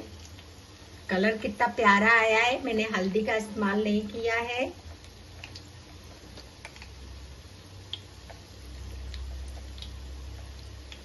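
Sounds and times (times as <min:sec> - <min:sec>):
oil frying with ticks and pops: 0:00.0 - 0:01.1, 0:04.1 - 0:11.0
low steady hum: 0:00.0 - 0:11.0.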